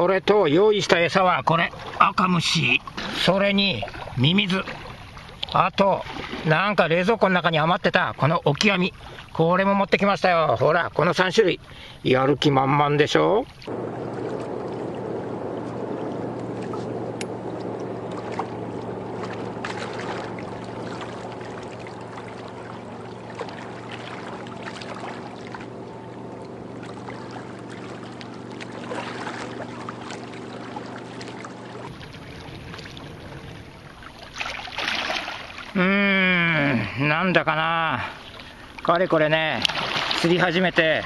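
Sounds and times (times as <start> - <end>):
steady low hum: 10.9 - 41.0.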